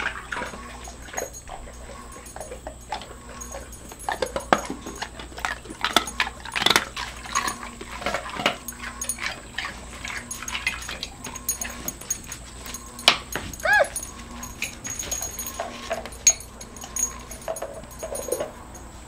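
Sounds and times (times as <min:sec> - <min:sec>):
dogs crunching ice cubes: 0:00.0 - 0:19.0.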